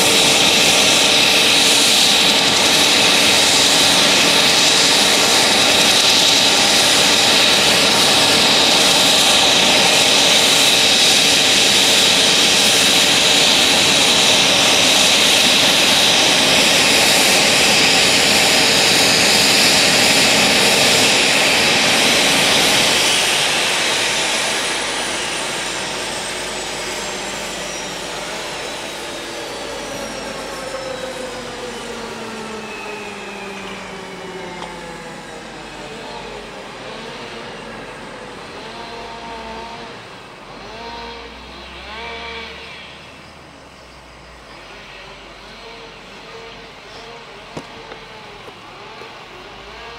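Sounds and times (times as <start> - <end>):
helicopter rotor turning: 0.0 - 39.4
turbine engine whine: 0.0 - 49.9.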